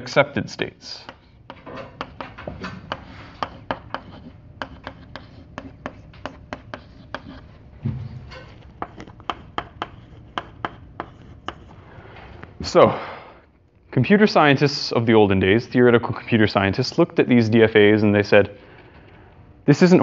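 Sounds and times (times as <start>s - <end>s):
chalk tapping on blackboard: 1.0s - 7.6s, 8.5s - 11.8s.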